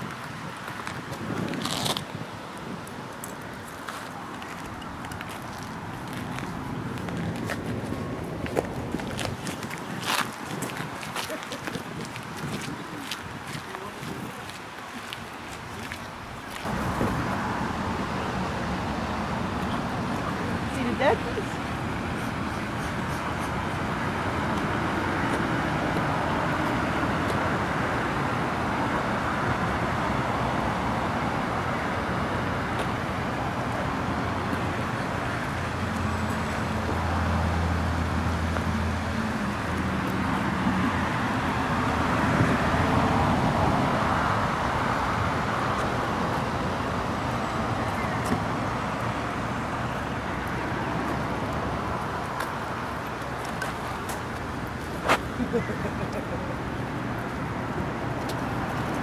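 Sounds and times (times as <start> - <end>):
road traffic noise: 0.0 - 59.0.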